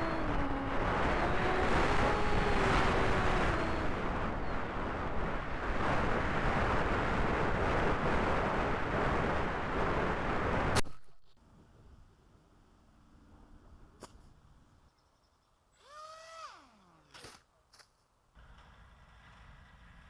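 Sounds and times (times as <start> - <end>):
electric motor and propeller whine: 0.0 - 10.6
wind rushing over microphone: 0.0 - 11.2.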